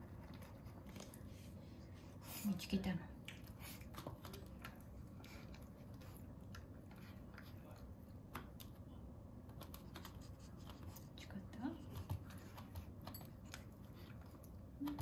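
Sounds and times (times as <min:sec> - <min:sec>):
puppy chewing food: 0:00.0 - 0:11.2.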